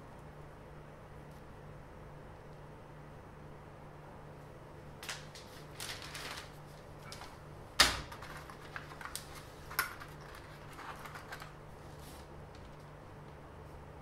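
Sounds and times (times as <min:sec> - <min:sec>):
paper rustling: 0:05.0 - 0:12.9.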